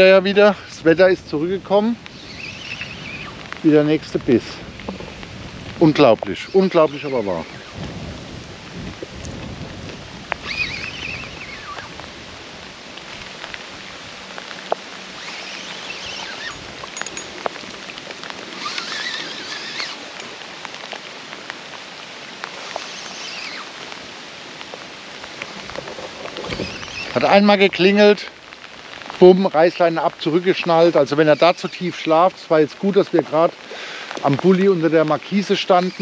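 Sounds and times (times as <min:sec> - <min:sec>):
steady rain: 0:00.0 - 0:36.0
drops tapping: 0:16.5 - 0:17.6.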